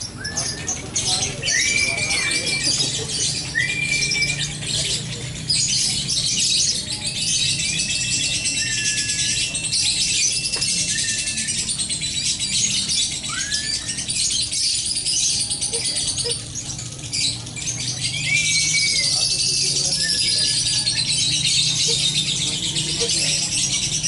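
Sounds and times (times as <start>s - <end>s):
flat whistled bird notes: 0.0s - 24.0s
songbirds twittering: 0.0s - 24.0s.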